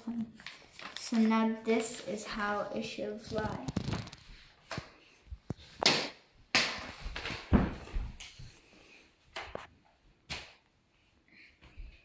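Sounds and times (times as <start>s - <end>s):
footsteps on a hard floor: 7.0s - 8.6s.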